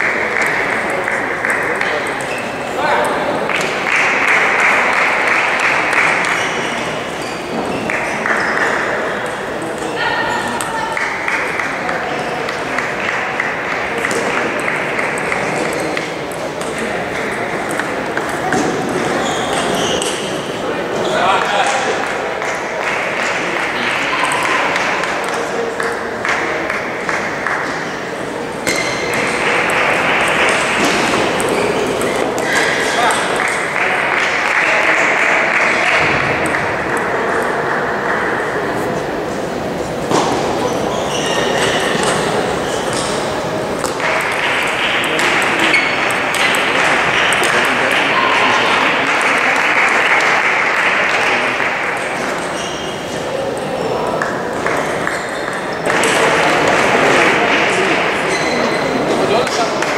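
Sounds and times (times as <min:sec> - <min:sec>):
table tennis balls clicking: 0:10.6 - 0:20.2, 0:28.6 - 0:35.0, 0:41.5 - 0:50.4, 0:53.6 - 0:57.3.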